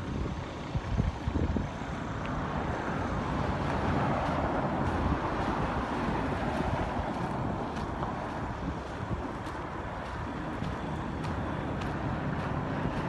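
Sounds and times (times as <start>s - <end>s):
vehicle road and wind noise: 0.0s - 13.0s
wind rumble on microphone: 0.0s - 13.0s.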